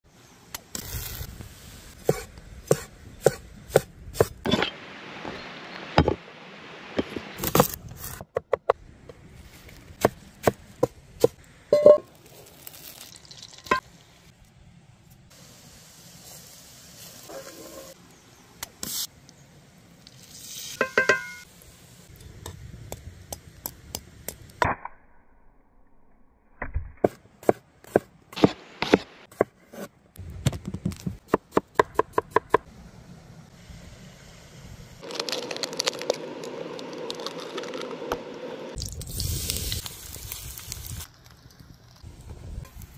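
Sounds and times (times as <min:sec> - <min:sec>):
food sizzling in a skillet: 0:38.8 - 0:41.1.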